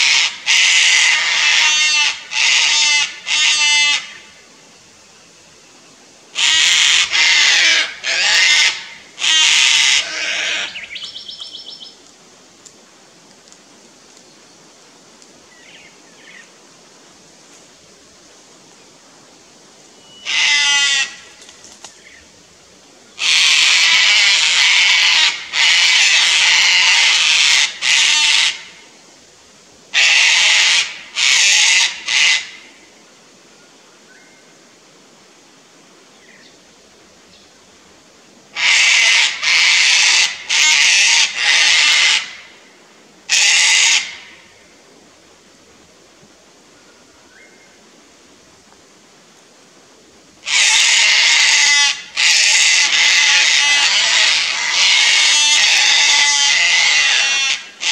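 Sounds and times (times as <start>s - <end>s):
cockatoos screeching: 6.4s - 11.3s, 20.2s - 21.2s, 38.6s - 42.4s, 50.4s - 57.9s.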